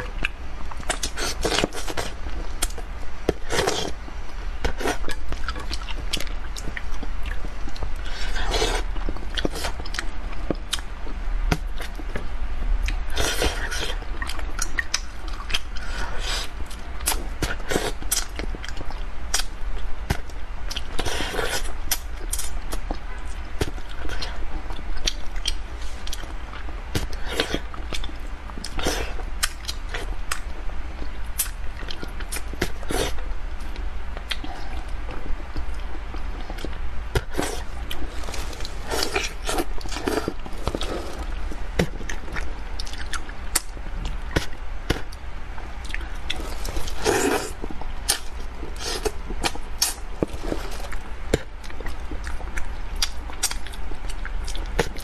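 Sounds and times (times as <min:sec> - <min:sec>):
steady low hum: 0:00.0 - 0:55.0
chewing and lip smacks: 0:41.8 - 0:45.2, 0:45.8 - 0:50.0, 0:50.7 - 0:55.0.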